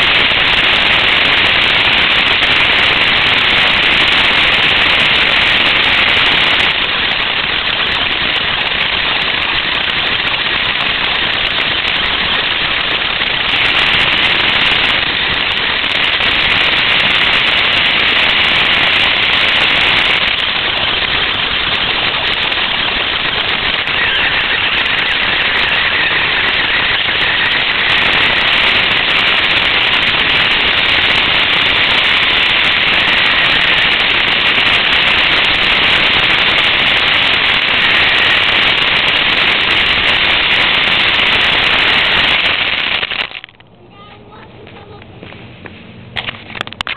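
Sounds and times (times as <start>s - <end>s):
radio-controlled car driving: 22.2s - 29.5s.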